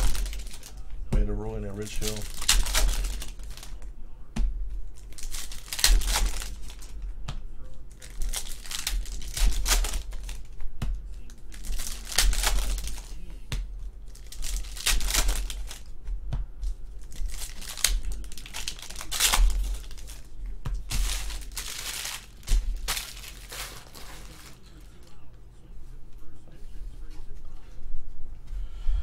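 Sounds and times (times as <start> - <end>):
foil wrappers tearing and crinkling: 0.0 - 0.9, 1.7 - 3.8, 5.0 - 7.0, 7.9 - 10.5, 11.3 - 13.3, 14.1 - 15.9, 17.0 - 20.3, 20.9 - 25.1.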